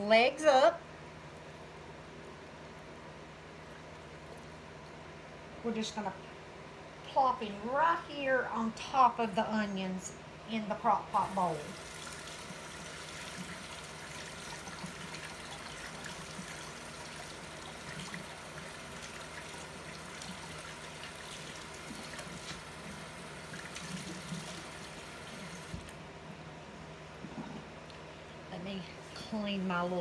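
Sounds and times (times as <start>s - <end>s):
tap water running into sink: 11.7s - 26.0s.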